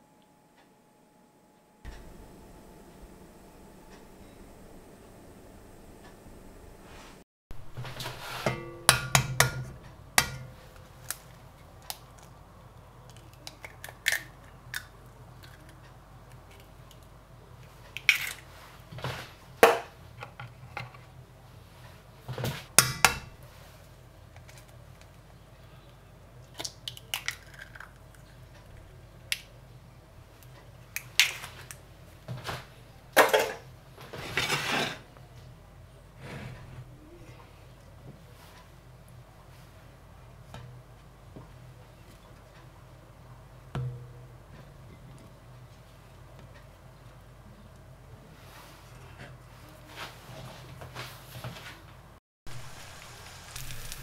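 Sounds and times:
frying pan and utensils clinking: 7.7s - 10.8s, 33.2s - 35.0s.

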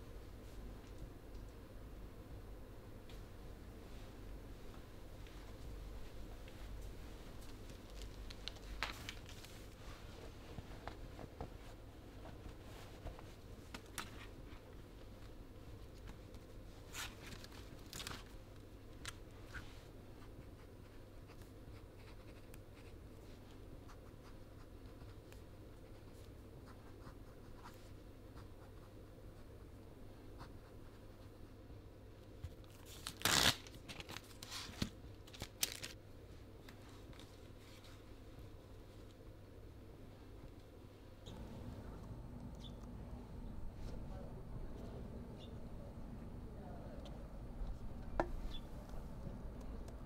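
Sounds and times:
low room hum: 0.0s - 50.0s
paper rustling: 7.3s - 14.6s, 16.8s - 18.4s
paper ripped from notepad: 32.9s - 34.5s.

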